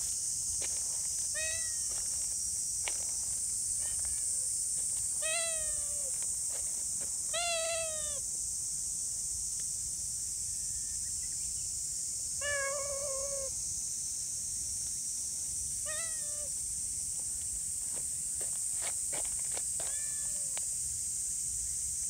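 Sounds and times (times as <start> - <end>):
cat meowing: 1.4 - 1.9, 5.2 - 6.1, 7.3 - 8.2, 12.4 - 13.5, 15.9 - 16.5, 19.8 - 20.6.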